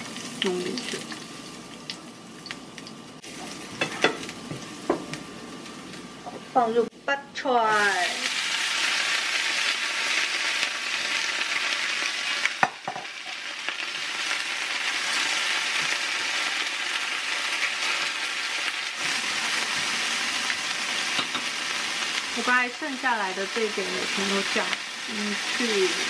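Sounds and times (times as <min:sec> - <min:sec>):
garlic and butter sizzling in oil: 0:00.0 - 0:26.0.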